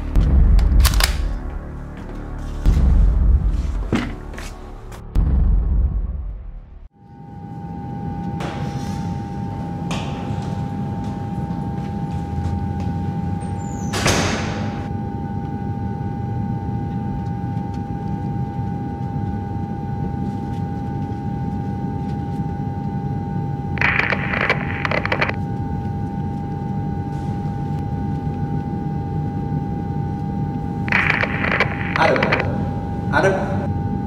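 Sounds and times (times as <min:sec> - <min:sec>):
low rumbling drone: 0:00.0 - 0:17.6
sustained high hum: 0:06.8 - 0:34.0
short bursts of noise: 0:23.8 - 0:25.4, 0:30.9 - 0:32.7.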